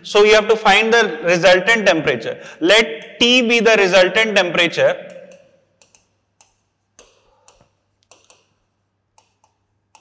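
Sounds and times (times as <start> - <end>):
marker writing on whiteboard: 2.4 - 3.7, 4.9 - 10.0.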